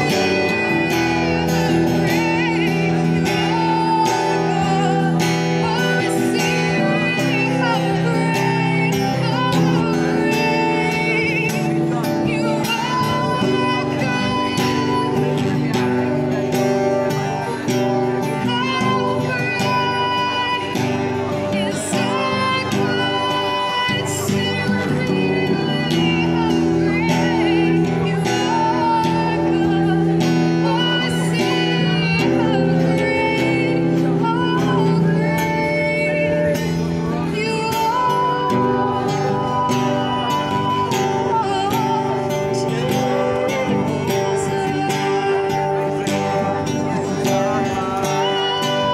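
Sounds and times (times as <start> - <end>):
strummed acoustic guitar: 0.0 - 48.9
woman singing with vibrato: 0.0 - 48.9.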